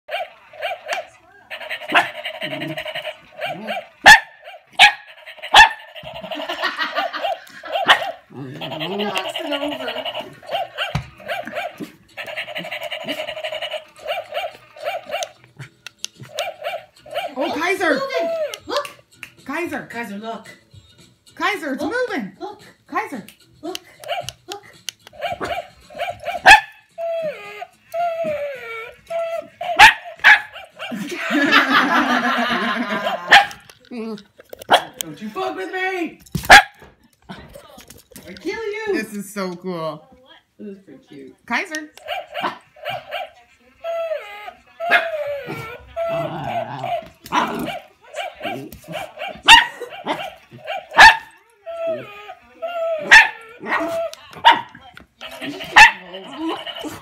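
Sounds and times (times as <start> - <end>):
puppy yipping: 0.1 - 6.0, 25.1 - 30.9, 42.0 - 56.9
puppy barking: 0.1 - 6.3, 7.0 - 8.3, 9.0 - 15.4, 16.3 - 18.6, 25.1 - 27.4, 29.1 - 33.6, 34.7 - 35.0, 36.5 - 36.9, 42.0 - 43.4, 44.8 - 52.2, 52.8 - 57.0
toy mechanism whirring and clicking: 0.1 - 18.8, 23.4 - 31.7, 32.6 - 36.5, 37.1 - 38.8, 41.6 - 57.0
puppy whining: 0.1 - 19.0, 23.8 - 31.1, 41.9 - 57.0.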